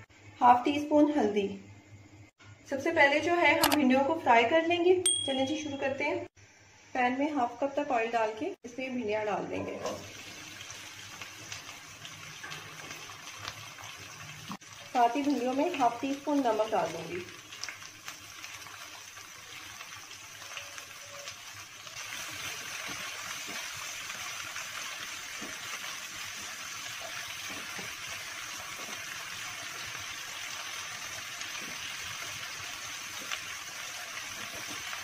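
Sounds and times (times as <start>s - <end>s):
okra sizzling in oil: 8.9s - 35.0s.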